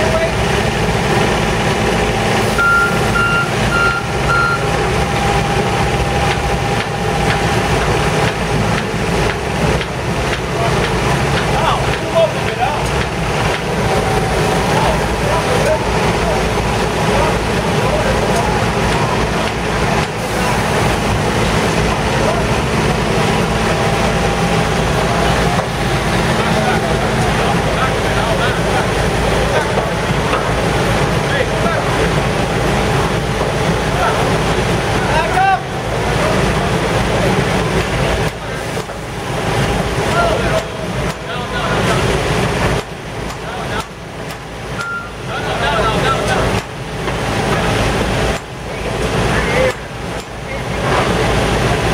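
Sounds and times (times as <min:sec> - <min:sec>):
diesel engine running: 0:00.0 - 0:51.9
backup alarm beeps: 0:02.5 - 0:07.6, 0:44.8 - 0:45.2.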